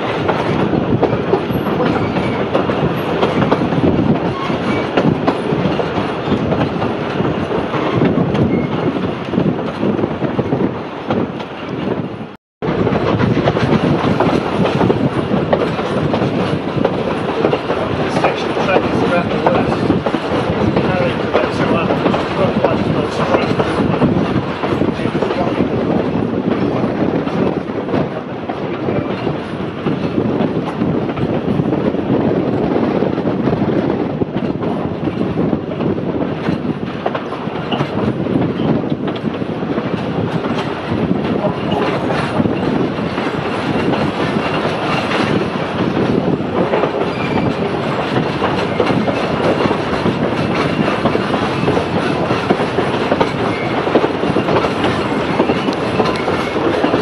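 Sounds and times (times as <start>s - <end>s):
clickety-clack over rail joints: 0.0s - 57.0s
train wheels rumbling on rails: 0.0s - 57.0s.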